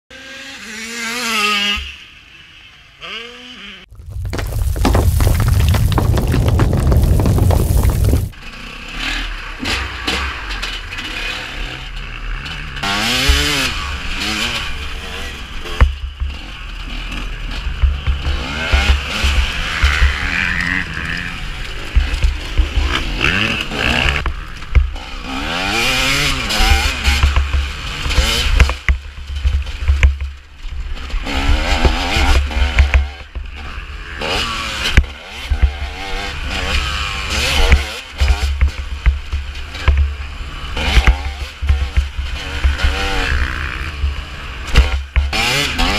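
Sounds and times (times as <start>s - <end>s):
wind rumble on microphone: 3.9s - 8.4s
motorcycle engine revving: 7.6s - 30.0s, 30.9s - 45.9s.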